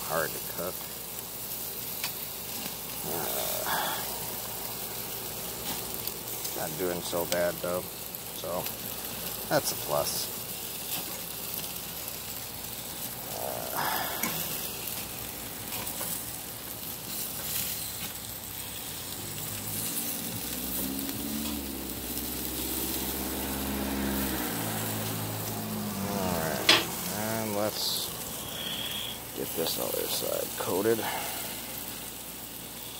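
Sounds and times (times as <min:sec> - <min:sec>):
chicken sizzling on a grill: 0:00.0 - 0:32.9
low humming drone: 0:03.0 - 0:05.0, 0:12.8 - 0:17.0, 0:19.1 - 0:29.4.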